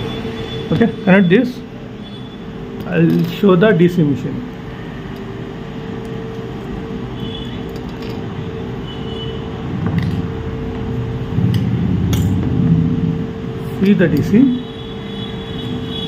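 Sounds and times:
wires and tools handled: 0:06.0 - 0:08.4
low hum: 0:07.9 - 0:13.8.

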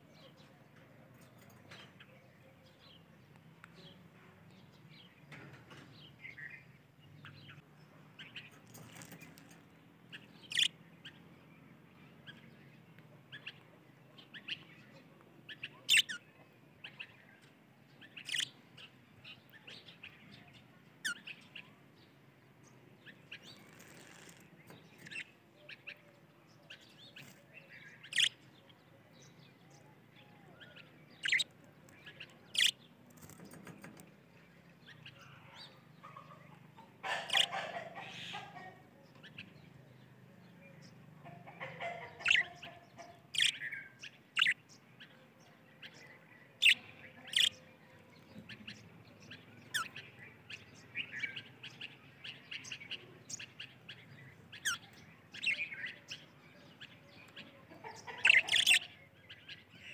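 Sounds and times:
budgerigars chirping: 0:10.4 - 0:10.8, 0:18.2 - 0:18.6, 0:28.1 - 0:28.4, 0:31.1 - 0:31.5, 0:32.5 - 0:32.8, 0:37.0 - 0:38.7, 0:41.6 - 0:44.6, 0:46.6 - 0:47.6, 0:49.6 - 0:50.1, 0:57.8 - 0:59.0
budgerigars chattering: 0:10.5 - 0:10.8, 0:15.9 - 0:16.2, 0:18.2 - 0:18.6, 0:28.1 - 0:28.4, 0:31.2 - 0:31.5, 0:32.5 - 0:32.8, 0:36.0 - 0:38.8, 0:41.2 - 0:44.6, 0:46.6 - 0:47.6, 0:49.7 - 0:50.1, 0:57.7 - 0:59.0.

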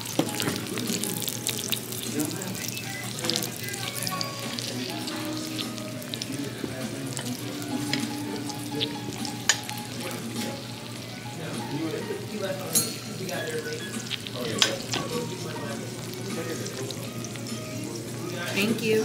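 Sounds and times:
background chatter: 0:00.0 - 0:19.0
faint music: 0:00.0 - 0:19.0
clinking plates and cutlery: 0:12.6 - 0:15.3.

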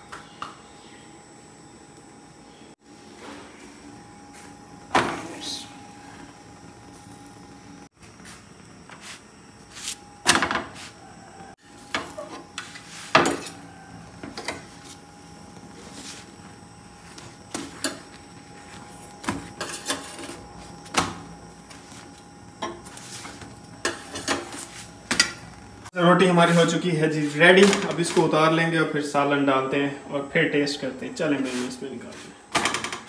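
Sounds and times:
tongs clattering on iron griddle: 0:22.6 - 0:25.6.

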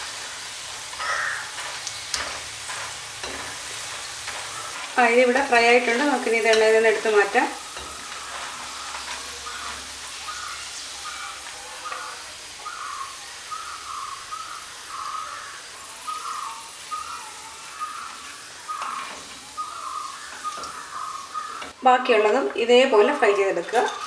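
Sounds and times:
oil sizzling: 0:00.0 - 0:24.0
bird chirping: 0:07.6 - 0:21.8.

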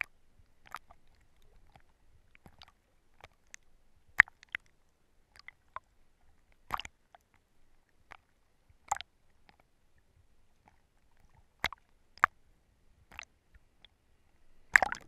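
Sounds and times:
water slapping and bubbling: 0:00.0 - 0:03.6, 0:06.7 - 0:06.9, 0:14.7 - 0:15.0.

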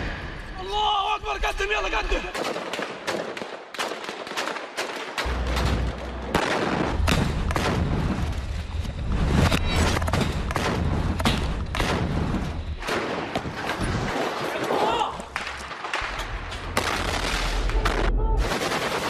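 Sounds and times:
rifle gunshots: 0:02.3 - 0:08.4, 0:10.0 - 0:14.4.

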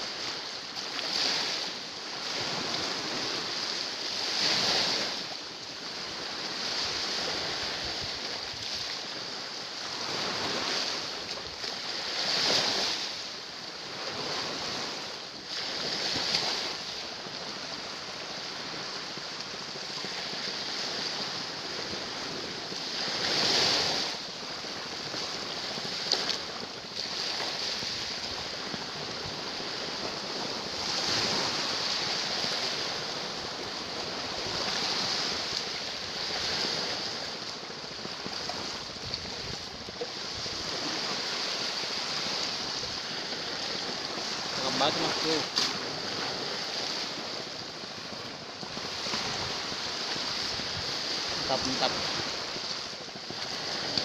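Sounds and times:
sea waves breaking on rocks: 0:00.0 - 0:54.0.

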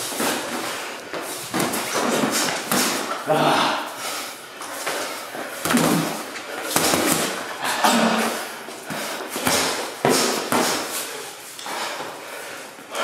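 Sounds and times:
boxing gloves punching: 0:01.5 - 0:03.2, 0:05.5 - 0:07.5, 0:08.9 - 0:11.1.

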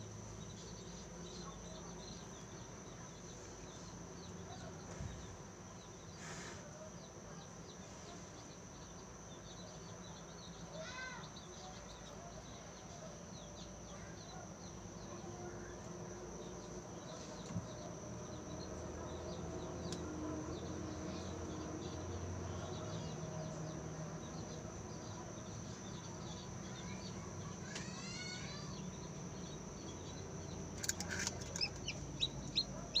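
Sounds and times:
incubator low hum: 0:00.0 - 0:33.0
constant high tone: 0:20.6 - 0:33.0
chick tapping and scraping: 0:30.6 - 0:33.0
chick peeping: 0:30.8 - 0:33.0.

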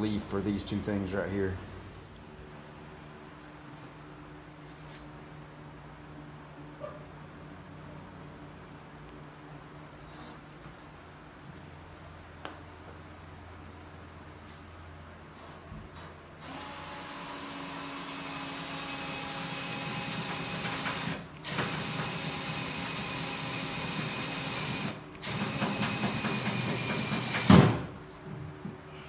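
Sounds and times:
power drill boring through sheet metal: 0:16.5 - 0:27.7.

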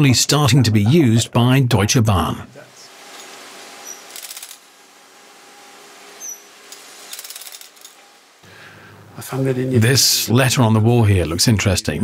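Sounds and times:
power wrench rattling: 0:03.1 - 0:04.7, 0:06.7 - 0:08.1.

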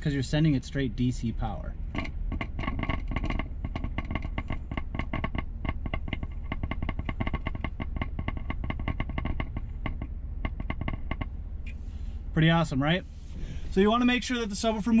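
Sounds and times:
low steady hum: 0:00.0 - 0:15.0
subwoofer crackling clicks: 0:01.9 - 0:11.8.

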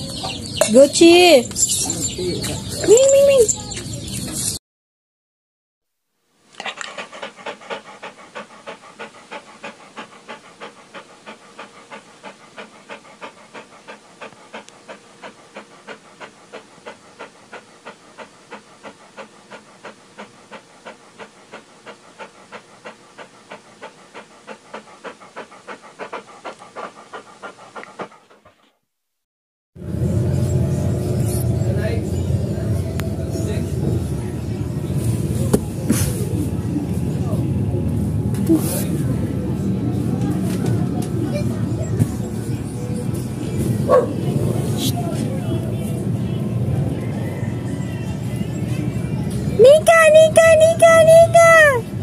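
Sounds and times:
dog panting fast: 0:00.0 - 0:04.6, 0:06.6 - 0:28.8, 0:31.0 - 0:52.0.

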